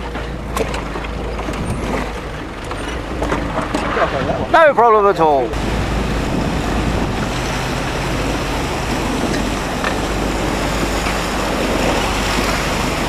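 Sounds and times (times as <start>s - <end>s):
low engine rumble: 0.0s - 13.0s
water on flooded track: 0.0s - 13.0s
wind on microphone: 1.4s - 2.3s, 3.0s - 4.6s, 5.5s - 13.0s.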